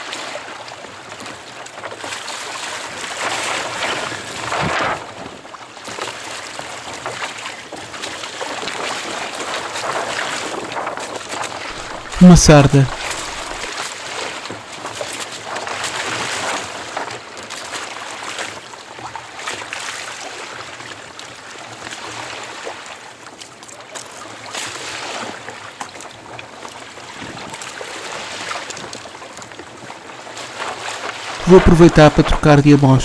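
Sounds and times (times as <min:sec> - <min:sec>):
water splashing against kayak hull: 0:12.9 - 0:13.9.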